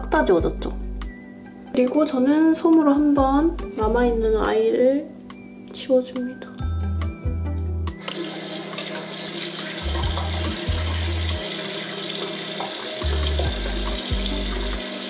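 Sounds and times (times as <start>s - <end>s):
background music with bass: 0.0s - 1.7s, 3.0s - 4.6s, 6.6s - 8.0s, 9.8s - 11.4s, 13.0s - 14.9s
tap running into sink: 8.0s - 15.0s.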